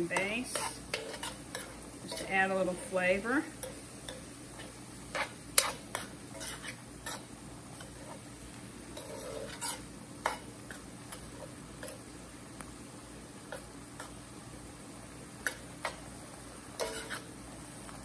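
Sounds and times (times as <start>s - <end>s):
spoon stirring in a skillet: 0.0s - 18.0s.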